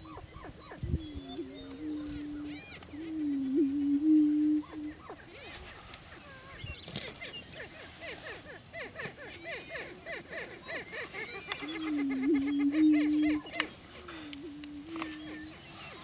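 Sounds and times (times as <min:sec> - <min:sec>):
prairie chickens yelping cackles: 0:00.0 - 0:16.0.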